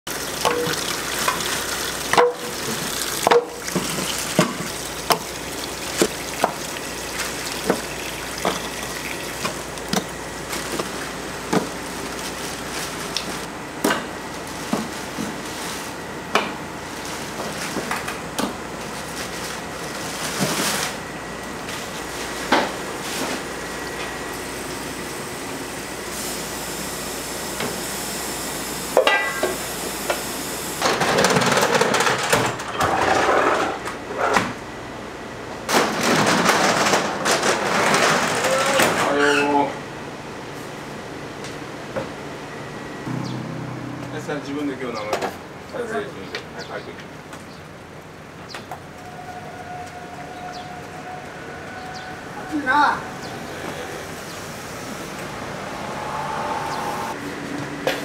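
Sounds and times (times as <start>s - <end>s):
tap water running into pot: 0.1s - 10.0s.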